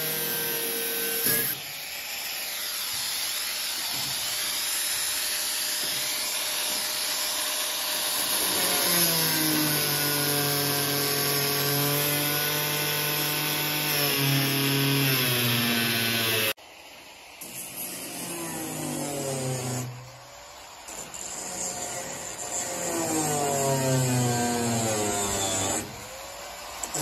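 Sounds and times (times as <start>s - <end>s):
angle grinder cutting metal: 0.0s - 16.6s.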